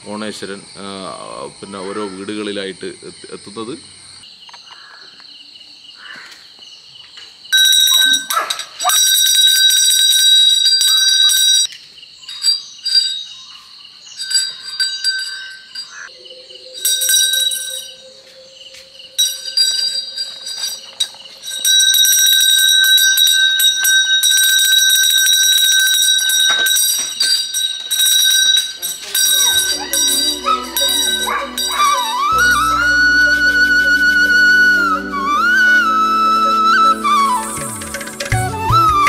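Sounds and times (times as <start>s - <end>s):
hand bell jingling: 7.6s - 11.7s, 12.3s - 13.5s, 14.1s - 16.1s, 16.8s - 18.2s, 19.1s - 33.7s.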